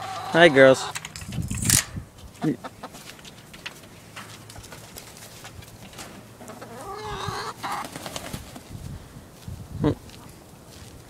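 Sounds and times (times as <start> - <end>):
chickens clucking: 0.0 - 1.6, 2.2 - 8.8.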